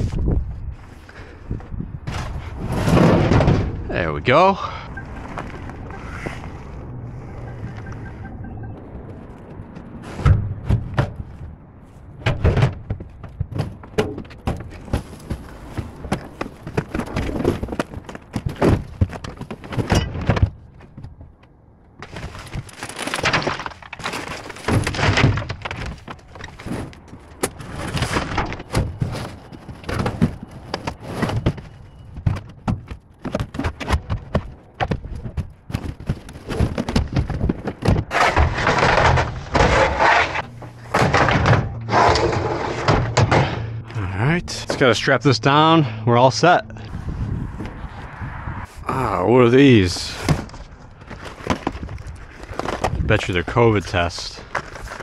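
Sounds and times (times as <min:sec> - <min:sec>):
crunching and scraping: 0:00.0 - 0:08.2, 0:08.9 - 0:55.0
debris banging in metal dumpster: 0:02.1 - 0:03.9, 0:22.1 - 0:26.9, 0:35.7 - 0:43.9.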